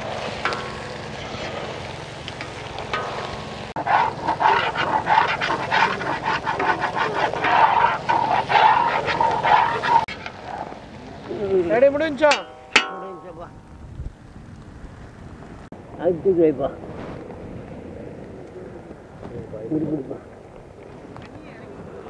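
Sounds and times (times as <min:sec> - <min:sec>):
metal spatula scraping pan: 0:02.9 - 0:10.5, 0:12.3 - 0:13.4.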